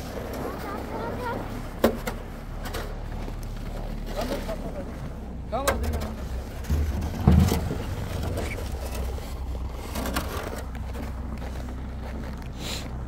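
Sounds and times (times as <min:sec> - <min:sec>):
steady low rumble: 0:04.7 - 0:13.0
loud bump: 0:05.8 - 0:09.0
footsteps crunching in snow: 0:07.8 - 0:13.0.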